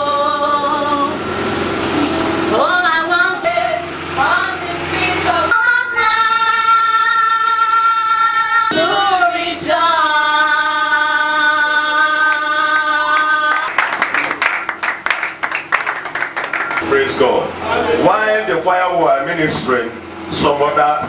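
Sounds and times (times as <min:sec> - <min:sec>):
hands clapping: 0:12.8 - 0:16.9.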